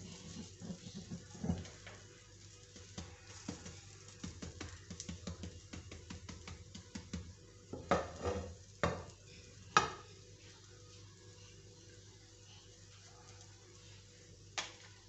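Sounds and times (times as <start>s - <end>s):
spatula scraping frying pan: 0.0s - 1.8s, 8.0s - 8.6s
bread sizzling in oil: 0.0s - 15.0s.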